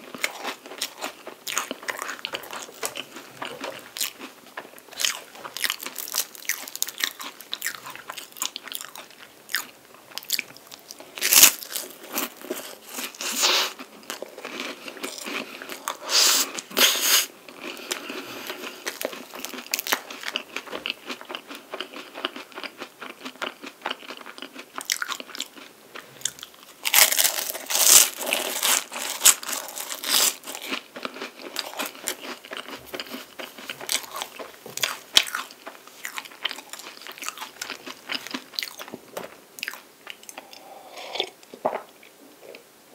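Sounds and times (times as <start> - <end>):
chewing crisp pastry: 0.0 - 41.4
loud crunching bites: 26.3 - 38.9.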